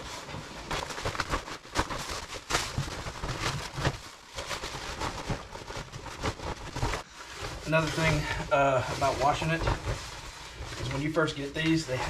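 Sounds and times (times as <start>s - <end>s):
rain suit rustling and crinkling: 0.0s - 12.0s.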